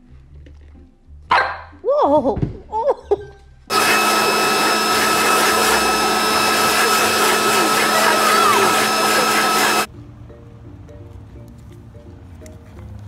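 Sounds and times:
leaf blower running: 3.7 - 9.9.

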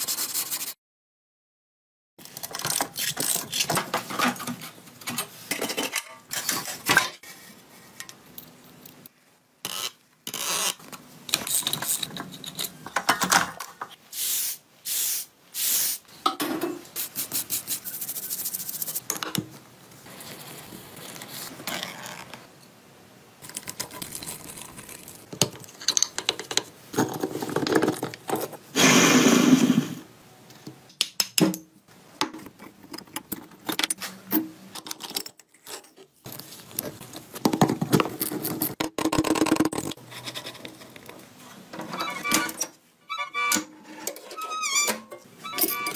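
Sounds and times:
metal tools clinking and scraping: 43.4 - 45.9.

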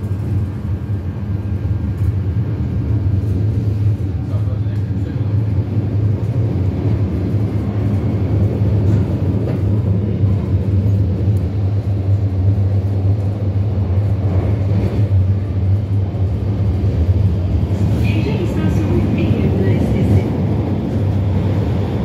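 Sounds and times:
metro train rumble: 0.0 - 22.0.

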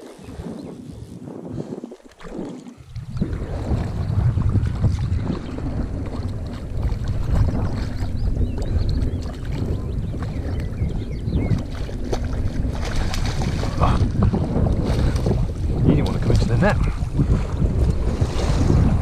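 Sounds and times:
wind buffeting microphone: 0.0 - 19.0
fish thrashing in water: 1.8 - 10.8, 11.5 - 19.0
landing net dipping in water: 11.6 - 16.6.

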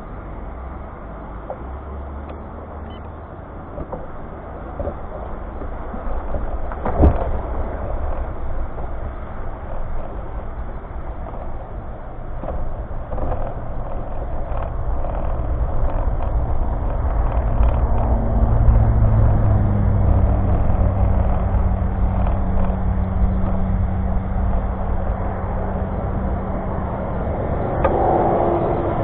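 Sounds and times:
engine hum: 0.0 - 29.0
truck and trailer rumbling: 0.0 - 29.0.

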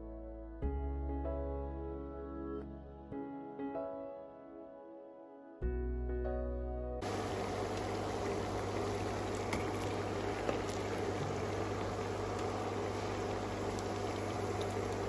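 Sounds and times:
oil sizzling in a pan: 7.0 - 15.0.

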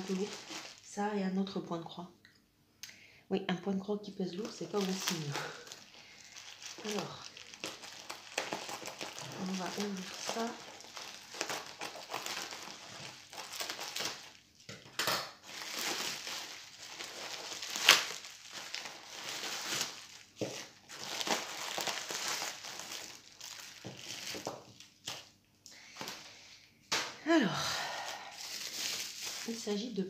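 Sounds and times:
plastic bag crinkling: 0.0 - 1.5, 4.3 - 25.3, 27.8 - 30.0
scissors cutting plastic: 7.6 - 16.0.

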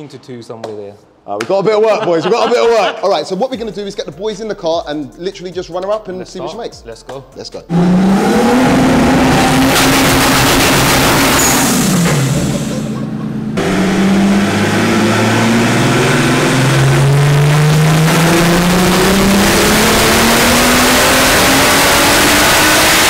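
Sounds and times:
engine revving under load: 7.7 - 23.0.

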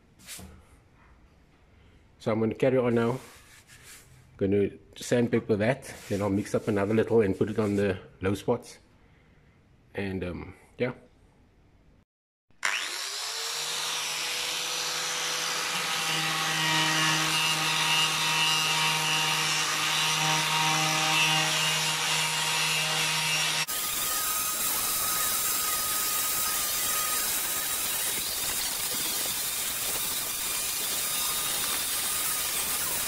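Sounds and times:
angle grinder grinding metal: 12.6 - 33.0.

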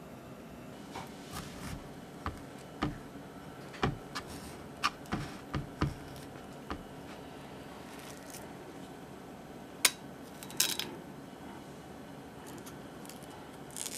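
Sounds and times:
knife tapping on cutting board: 2.3 - 3.0, 3.8 - 4.2, 5.1 - 6.0.

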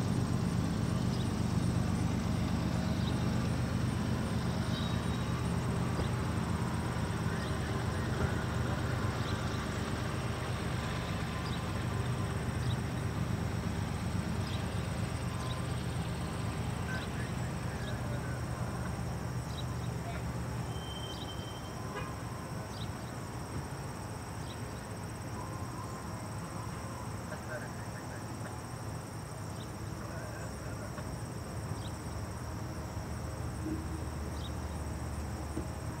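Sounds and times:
diesel locomotive rumbling: 0.0 - 36.0
insects trilling: 0.0 - 36.0
faint high chirps: 20.0 - 22.9.

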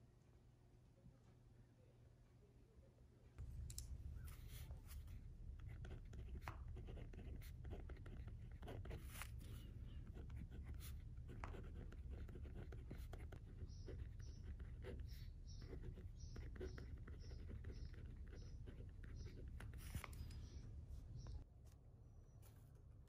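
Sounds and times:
low steady hum: 0.0 - 23.0
pen scratching on paper: 4.2 - 20.2.

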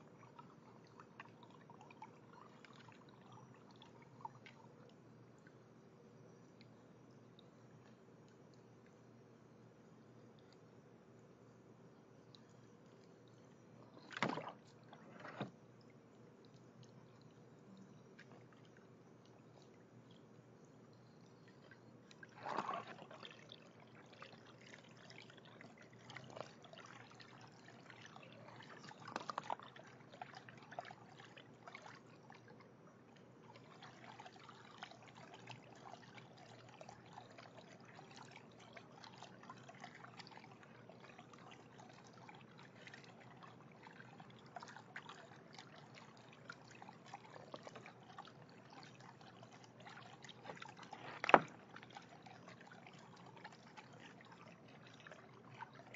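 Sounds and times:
small water splashes: 0.0 - 5.6, 12.3 - 20.6, 21.2 - 55.9
water trickling: 0.0 - 55.9.

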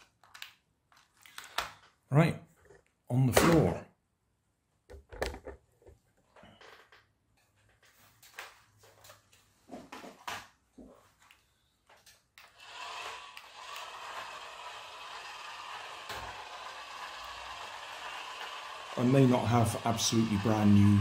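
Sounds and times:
toy car motor whirring: 12.4 - 21.0.

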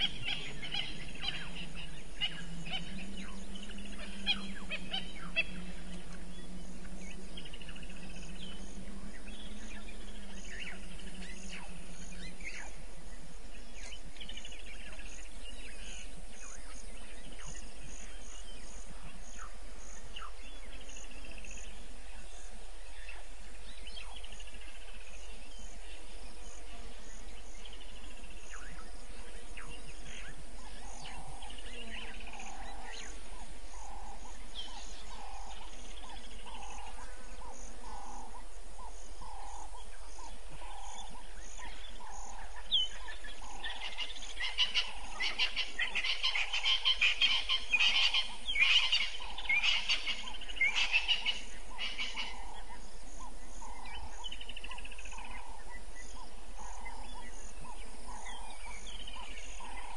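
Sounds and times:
rapid chattering high calls: 0.0 - 6.0, 29.9 - 59.9
low pulsing frog call: 0.0 - 59.9.

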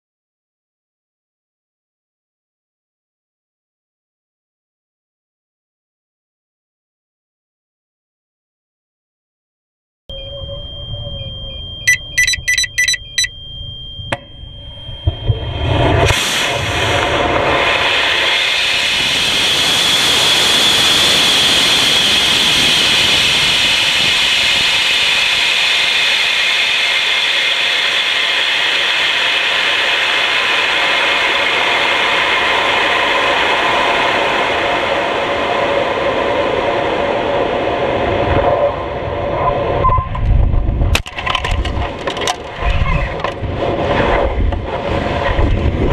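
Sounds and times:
short electronic beeps: 10.1 - 15.7, 39.8 - 40.2.

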